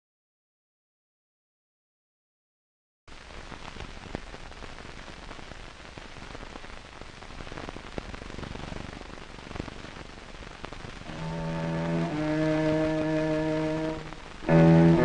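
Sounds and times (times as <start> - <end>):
film soundtrack hiss and crackles: 3.1 - 15.0.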